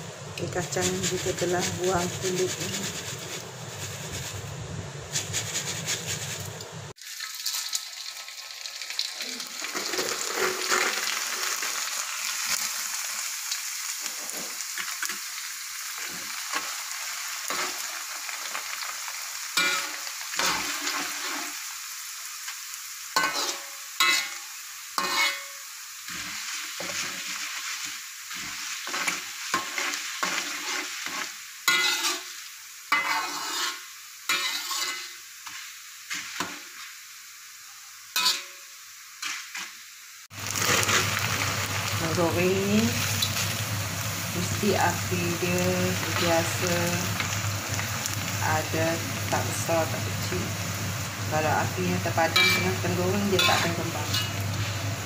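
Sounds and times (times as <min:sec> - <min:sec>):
rice sizzling in hot oil: 0:00.0 - 0:55.0
metal spatula scraping a wok: 0:00.6 - 0:06.5, 0:19.6 - 0:21.6, 0:23.2 - 0:24.4, 0:25.0 - 0:36.9, 0:38.2 - 0:38.6, 0:39.2 - 0:39.8, 0:52.4 - 0:54.8.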